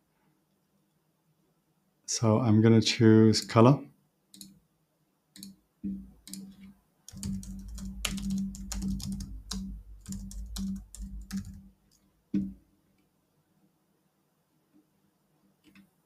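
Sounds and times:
typing on a computer keyboard: 0:06.2 - 0:12.0.

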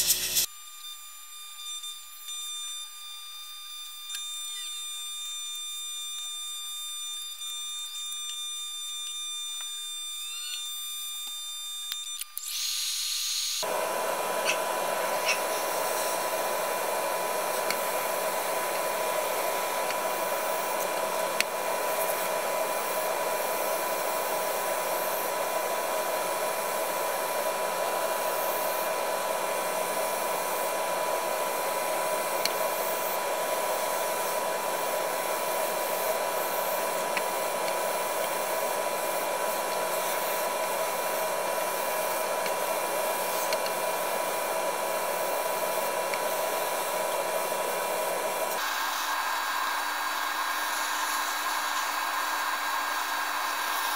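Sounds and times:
airbrush hissing: 0:13.6 - 0:53.9
compressor hum: 0:13.6 - 0:53.9.

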